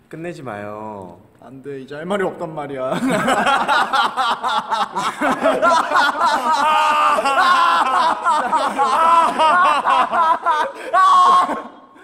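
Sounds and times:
men laughing loudly: 0:02.9 - 0:11.9
excited voices: 0:03.6 - 0:11.9.

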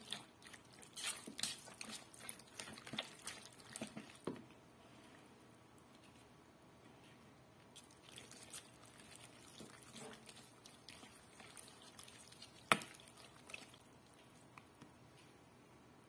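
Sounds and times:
wet squishing: 0:00.0 - 0:04.4, 0:07.7 - 0:14.9.

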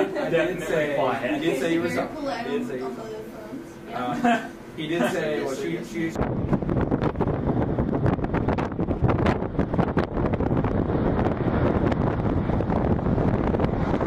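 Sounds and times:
wind buffeting microphone: 0:06.1 - 0:14.0.

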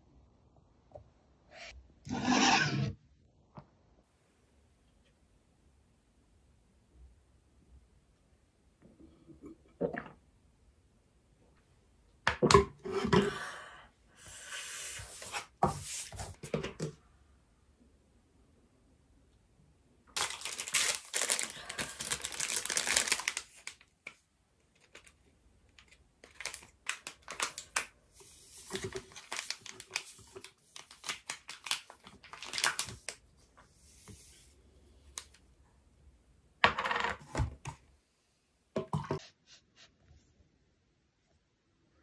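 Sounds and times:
crinkling and rustling: 0:20.1 - 0:34.5.

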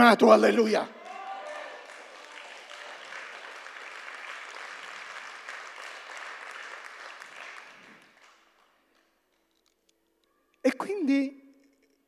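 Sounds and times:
congregation applauding: 0:00.9 - 0:09.2.

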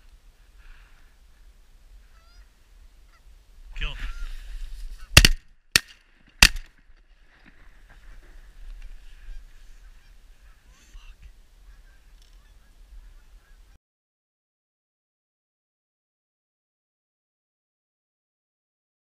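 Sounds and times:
geese honking faintly: 0:01.9 - 0:05.2, 0:07.8 - 0:13.8.

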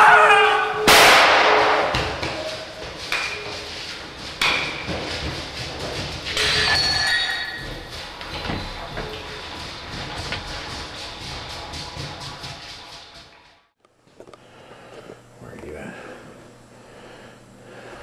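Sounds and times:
loud bang: 0:00.8 - 0:02.3
short ringing scrape: 0:06.4 - 0:07.6.

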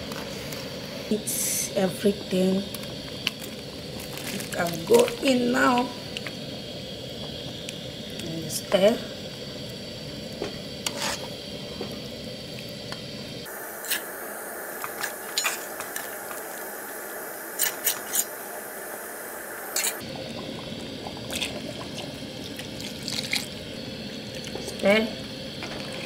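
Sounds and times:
soup sloshing: 0:19.8 - 0:24.8.

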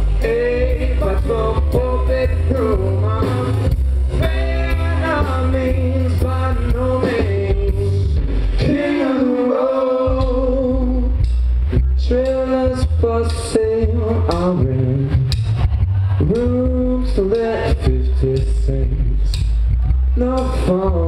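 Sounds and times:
electric guitar: 0:00.0 - 0:09.2
drum kit: 0:00.0 - 0:21.0
upright double bass: 0:00.0 - 0:21.0.

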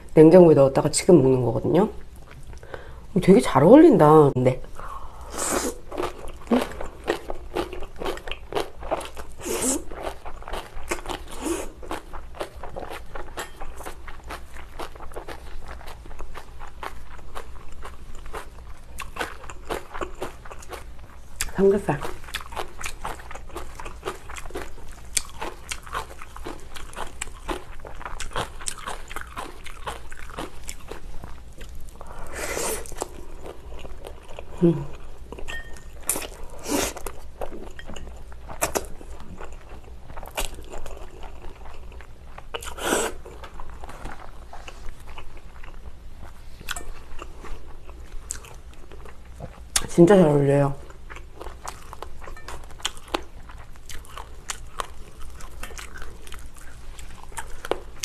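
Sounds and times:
chewing with wet clicks: 0:09.9 - 0:31.9, 0:37.0 - 0:43.8, 0:46.7 - 0:49.9, 0:50.9 - 0:58.0.

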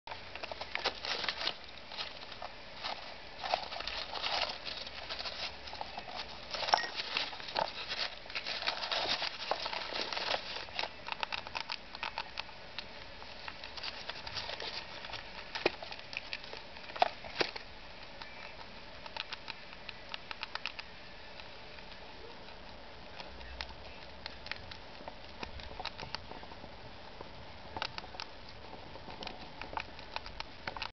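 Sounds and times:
small clicks and scratches: 0:00.1 - 0:30.9
paper rustling and crinkling: 0:00.4 - 0:11.3, 0:13.3 - 0:17.6.

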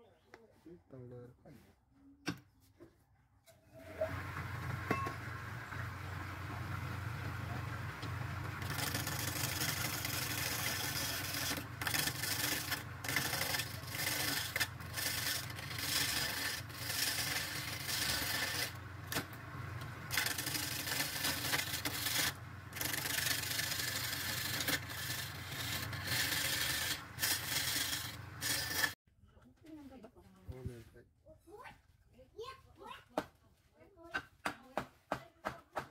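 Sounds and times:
wood lathe running: 0:03.8 - 0:29.0
turning tool rasping wood: 0:05.5 - 0:29.0.

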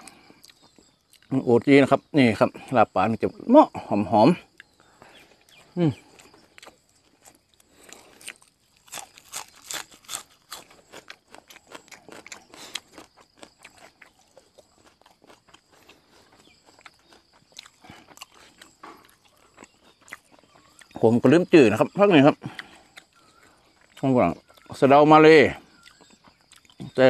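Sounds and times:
person chewing food: 0:00.0 - 0:01.3, 0:04.5 - 0:21.0, 0:22.4 - 0:24.7, 0:25.7 - 0:27.0.

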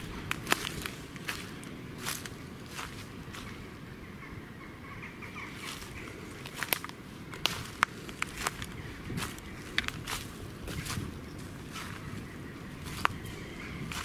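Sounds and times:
twigs snapping: 0:00.0 - 0:02.9, 0:06.4 - 0:11.0
footsteps in muddy undergrowth: 0:00.0 - 0:03.6, 0:05.5 - 0:14.0.

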